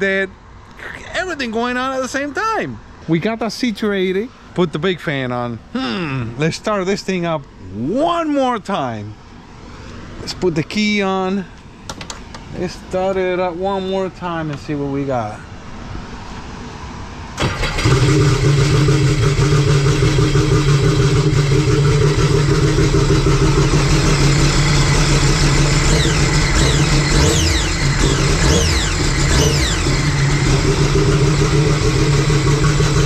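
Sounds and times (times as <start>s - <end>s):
jet ski engine running loud: 17.6s - 33.0s.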